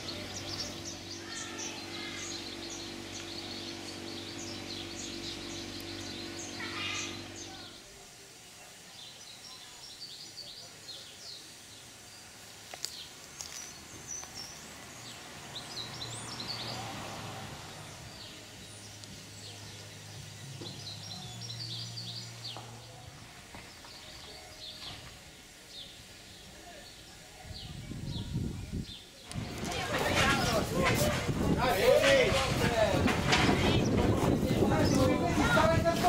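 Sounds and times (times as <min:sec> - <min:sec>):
small birds chirping: 0:00.0 - 0:36.0
soft hiss: 0:07.2 - 0:29.8.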